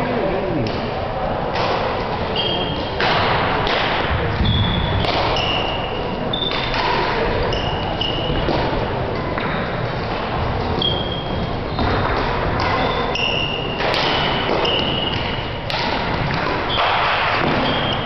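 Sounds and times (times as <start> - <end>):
shoe squeaks: 2.3 - 3.0, 4.4 - 6.7, 7.4 - 8.5, 10.8 - 12.0, 12.8 - 15.4, 16.6 - 18.0
racket hitting shuttlecock: 2.9 - 7.6, 11.8 - 18.0.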